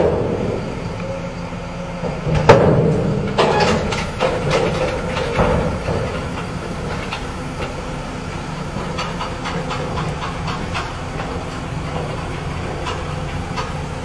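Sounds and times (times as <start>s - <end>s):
truck engine running: 0.0s - 14.0s
metallic clanks and clicks: 2.3s - 7.8s, 8.8s - 13.8s.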